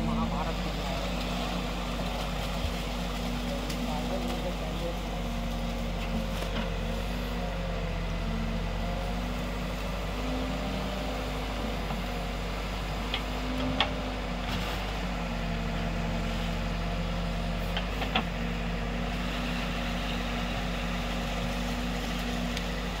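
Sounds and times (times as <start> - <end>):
diesel engine running: 0.0 - 23.0.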